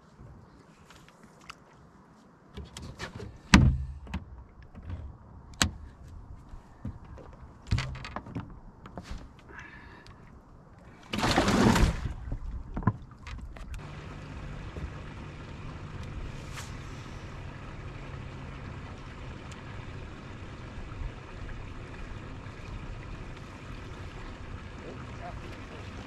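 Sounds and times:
water noise around a boat: 0:00.0 - 0:26.0
wind: 0:00.0 - 0:26.0
low hum: 0:10.1 - 0:26.0.

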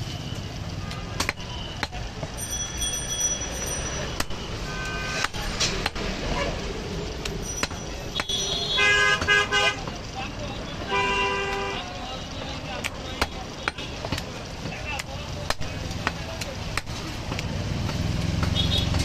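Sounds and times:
traffic rumble: 0:00.0 - 0:19.0
cleaver chopping meat and bone: 0:01.0 - 0:02.4, 0:04.0 - 0:04.5, 0:05.2 - 0:06.1, 0:07.2 - 0:08.5, 0:12.7 - 0:19.0.

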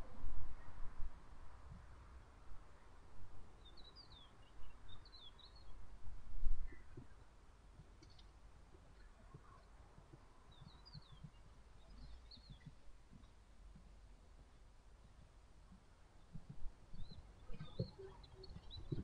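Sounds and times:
faint bird chirps: 0:08.9 - 0:12.8, 0:16.2 - 0:19.0.

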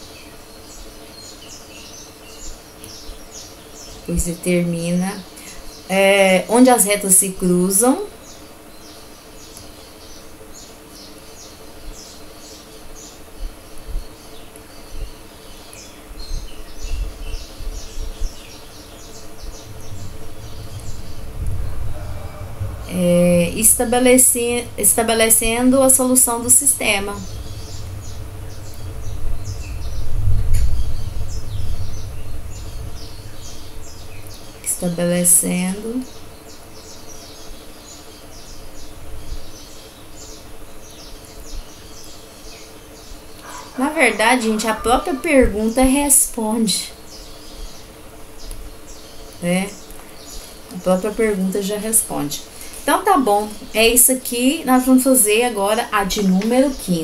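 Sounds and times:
faint steady hum: 0:00.0 - 0:57.0
small birds chirping: 0:00.0 - 0:57.0
low rumble: 0:18.8 - 0:36.8
low thuds: 0:19.3 - 0:36.3.

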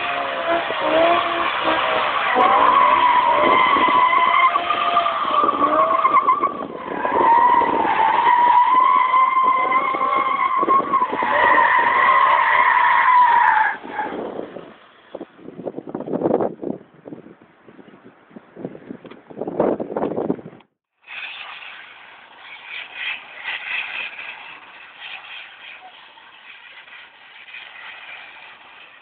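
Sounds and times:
car engine revving: 0:00.0 - 0:08.4
tyres squealing: 0:00.0 - 0:14.2.

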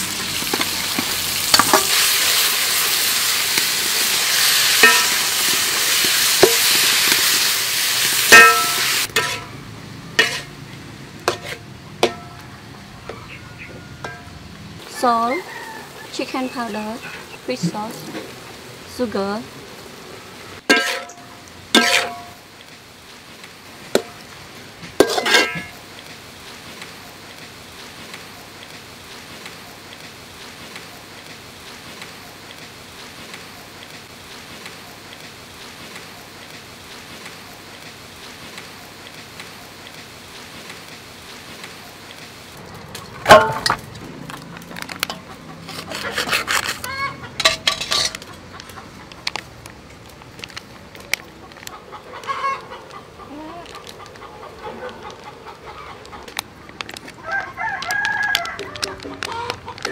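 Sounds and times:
metal spatula clanging on wok: 0:04.8 - 0:05.3, 0:08.2 - 0:09.6, 0:10.2 - 0:10.5, 0:11.3 - 0:12.4, 0:14.0 - 0:14.3, 0:20.7 - 0:22.4, 0:25.0 - 0:25.8, 0:43.2 - 0:43.8, 0:47.4 - 0:48.2
sharp metal clank: 0:08.3 - 0:09.5
chickens clucking: 0:12.1 - 0:18.1, 0:42.5 - 0:49.7, 0:50.9 - 0:59.9
dry noodles crackling as crushed: 0:47.8 - 0:52.3, 0:56.1 - 0:59.9.

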